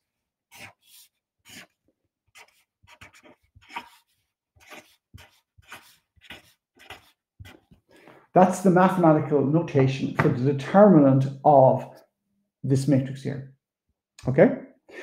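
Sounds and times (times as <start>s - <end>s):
felt-tip marker writing on paper: 0.5s - 7.8s.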